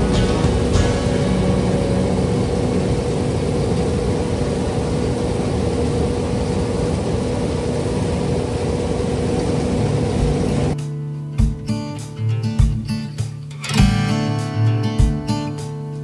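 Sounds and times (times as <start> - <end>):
engine running steadily: 0.0 - 10.8.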